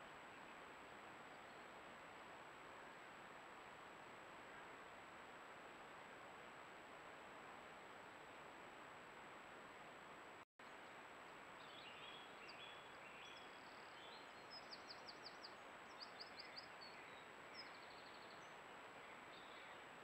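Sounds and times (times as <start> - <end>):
songbird singing: 0.0 - 1.9, 10.6 - 20.0
microphone hiss: 0.0 - 20.0.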